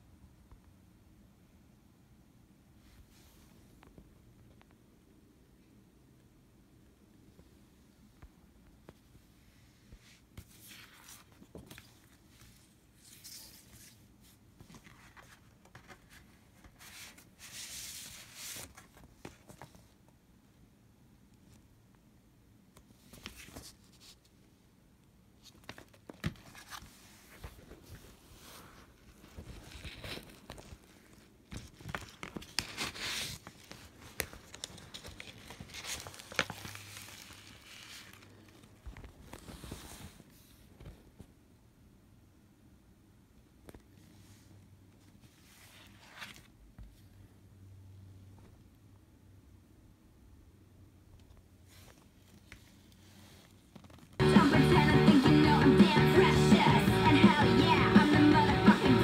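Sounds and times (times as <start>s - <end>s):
paper and card rustling: 10.3s - 20.0s, 23.0s - 24.4s, 25.4s - 41.0s, 45.1s - 46.6s.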